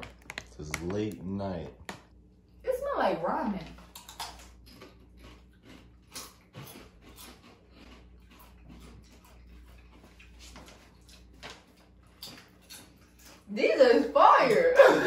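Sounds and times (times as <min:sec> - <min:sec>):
crunching of chips being chewed: 0:03.8 - 0:13.5.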